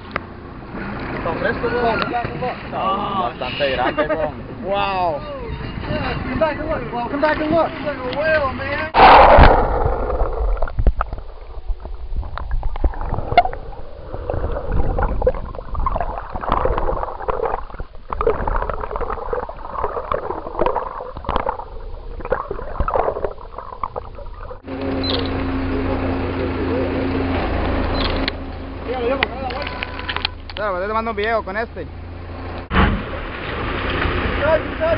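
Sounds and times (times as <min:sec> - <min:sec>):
low rumble: 0:08.8 - 0:28.9
water gurgling with bubbles: 0:09.0 - 0:25.8.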